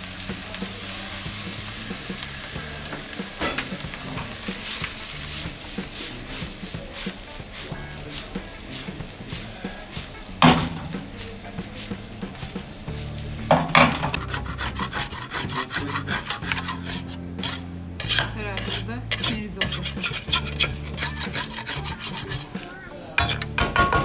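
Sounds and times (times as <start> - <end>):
rice tossed in steel pan: 0.0 - 24.0
metal spoon scraping pan: 1.5 - 24.0
sharp metal clanks: 3.4 - 3.9.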